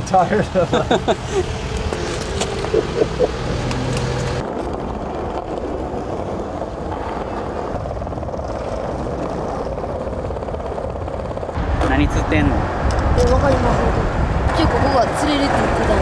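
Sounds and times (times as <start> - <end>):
skateboard wheels rolling on pavement: 0.1 - 16.0.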